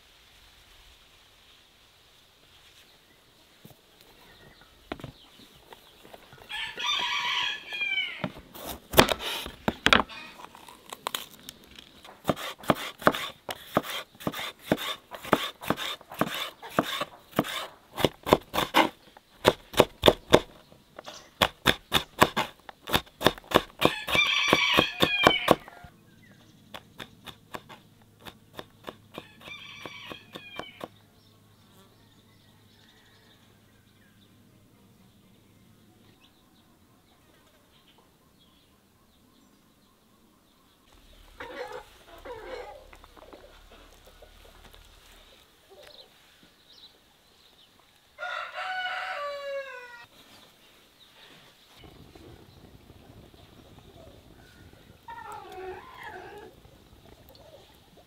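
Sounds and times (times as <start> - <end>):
bird calling: 9.0 - 33.2, 36.1 - 47.1, 49.4 - 58.0
knife chopping on wooden board: 12.1 - 20.5, 21.4 - 25.7, 26.8 - 30.9.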